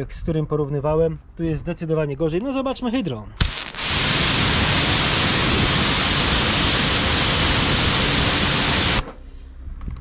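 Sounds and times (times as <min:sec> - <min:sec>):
pressure washer spraying: 0:03.4 - 0:09.0.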